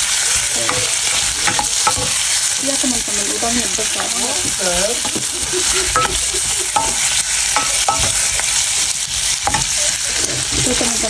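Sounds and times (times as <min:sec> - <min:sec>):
shrimp sizzling in hot oil: 0:00.0 - 0:11.0
spatula clicking against pan: 0:05.9 - 0:08.6.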